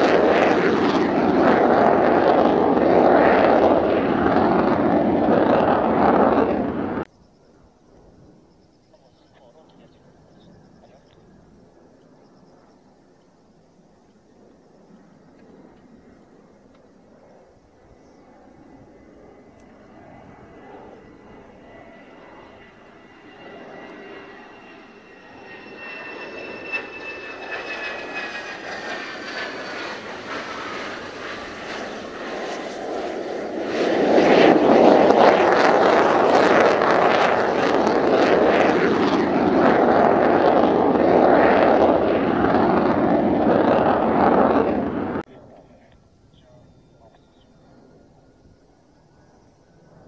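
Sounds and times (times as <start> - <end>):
loud jet roar: 0.0 - 7.1, 15.3 - 46.6
jet engine whine: 0.0 - 50.0.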